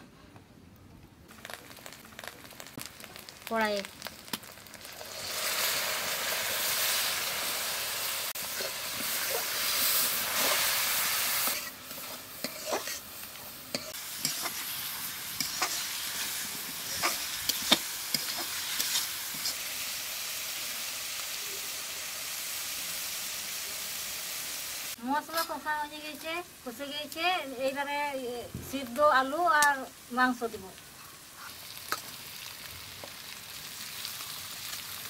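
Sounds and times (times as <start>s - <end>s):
spice paste sizzling in hot oil: 1.3s - 35.0s
metal spatula scraping a pan: 8.5s - 13.1s, 13.7s - 19.7s.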